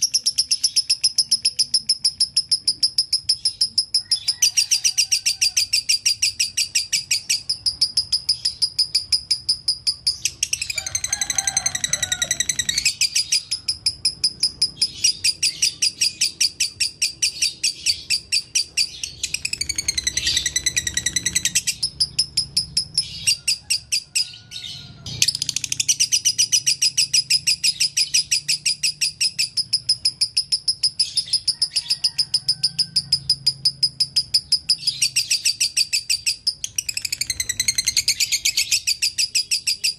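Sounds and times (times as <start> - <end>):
lovebird chattering: 0.0 - 24.4, 25.2 - 39.9
bird warbling: 0.0 - 35.4.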